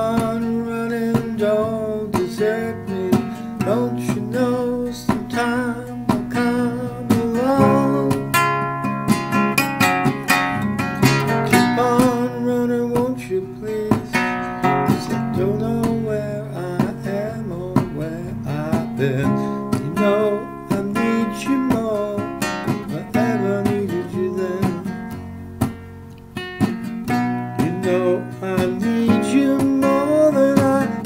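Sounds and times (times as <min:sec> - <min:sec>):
acoustic guitar playing: 0:00.0 - 0:31.0.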